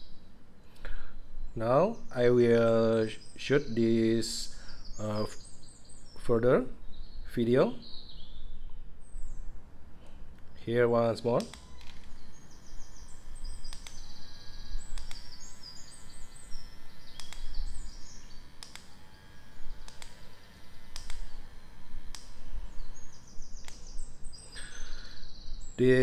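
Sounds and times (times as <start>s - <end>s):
birds chirping: 0.0s - 26.0s
sharp clicks: 11.2s - 24.0s
milk frother motor whine: 11.4s - 25.8s.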